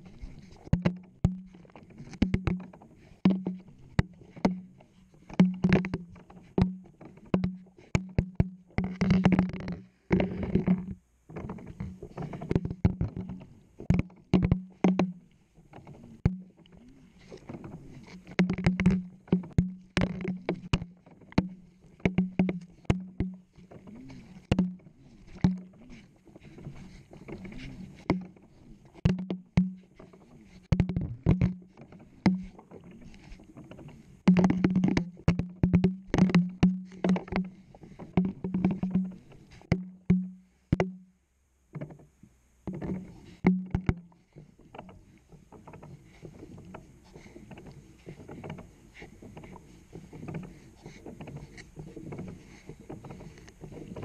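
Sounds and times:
water sloshing: 11.3 - 40.2, 42.7 - 54.0.

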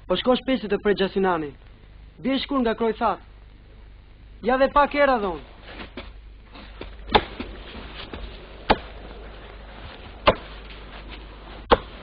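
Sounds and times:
sharp knocks: 5.8 - 9.0, 10.2 - 10.5, 11.7 - 12.0.

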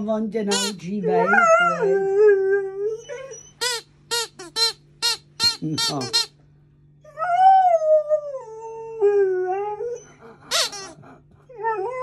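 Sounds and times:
rubber squeaky toy squeak: 0.5 - 0.9, 3.3 - 6.4, 10.5 - 11.0
puppy howling: 1.0 - 3.8, 7.0 - 12.0.

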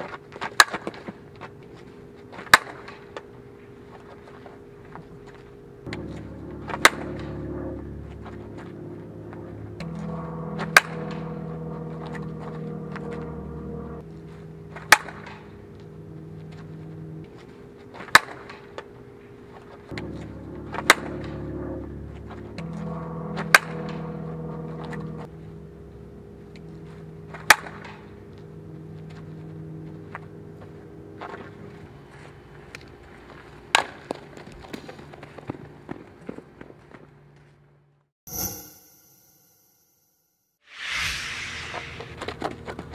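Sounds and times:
bat striking balls: 5.9 - 7.4, 9.8 - 12.5, 14.8 - 15.6, 23.4 - 25.1, 27.4 - 28.1.

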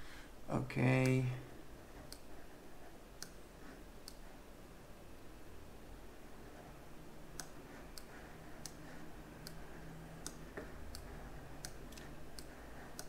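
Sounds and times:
computer mouse clicks: 2.0 - 2.3, 3.2 - 3.4, 4.0 - 4.3, 7.3 - 13.0.

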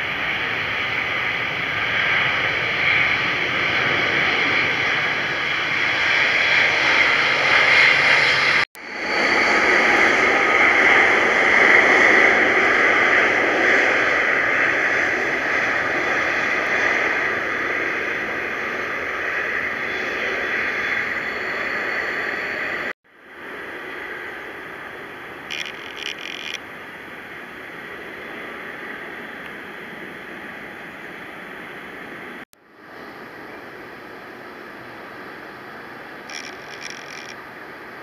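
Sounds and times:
jet engines rushing: 0.0 - 38.0.

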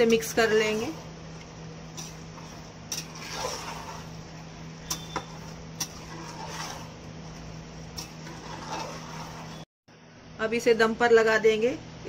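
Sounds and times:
steady low hum: 0.0 - 12.0
ladle scraping in pot: 1.9 - 9.6.

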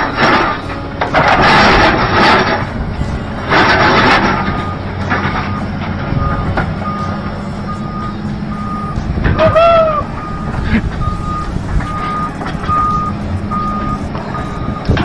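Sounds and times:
excavator diesel engine running: 0.0 - 15.0
travel alarm beeps: 5.4 - 9.1, 10.1 - 15.0.

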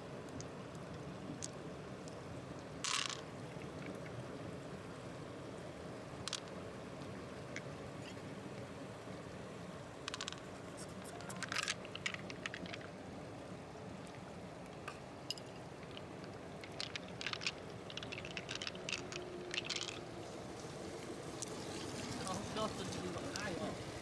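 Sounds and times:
pearls clicking in shell: 2.8 - 3.3, 10.1 - 13.0, 15.3 - 20.0.

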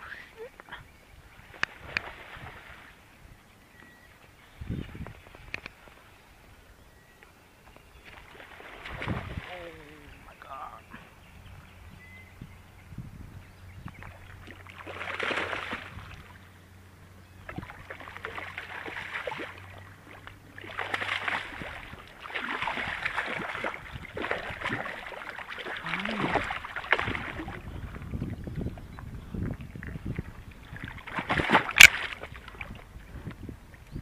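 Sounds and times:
fish splashing in water: 8.1 - 9.8, 14.0 - 16.4, 17.4 - 28.1, 30.7 - 32.8.

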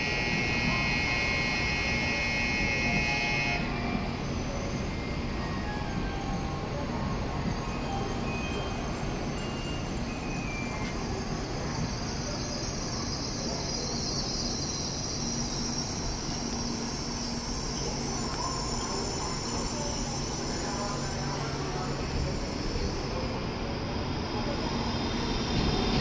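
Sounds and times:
train rumble and hum: 0.0 - 26.0.

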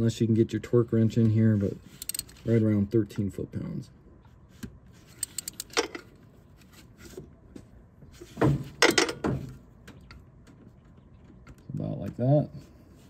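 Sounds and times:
ratchet wrench clicking: 1.9 - 2.4, 5.2 - 5.9.

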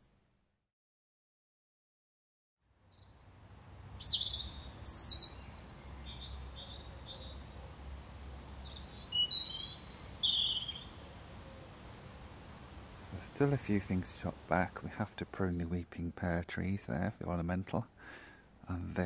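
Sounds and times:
robin singing: 2.9 - 12.3.

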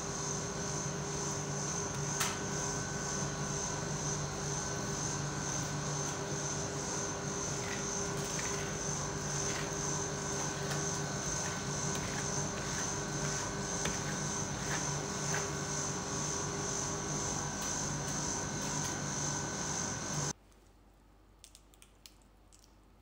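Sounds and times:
refrigeration machine hum: 0.0 - 20.4
metal spatula scraping ice cream: 7.3 - 16.1.

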